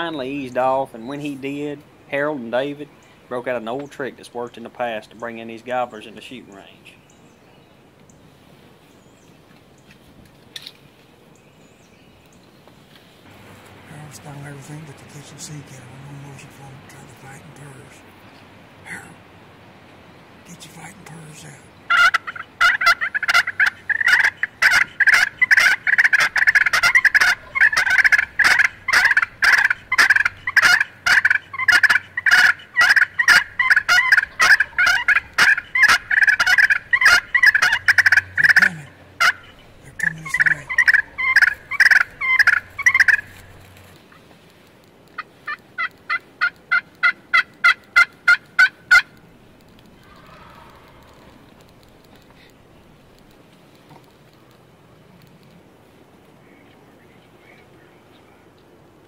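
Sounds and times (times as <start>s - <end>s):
evenly spaced turkey call notes: 12.3s - 19.3s, 20.4s - 54.6s
rasping turkey call purrs: 20.6s - 43.7s.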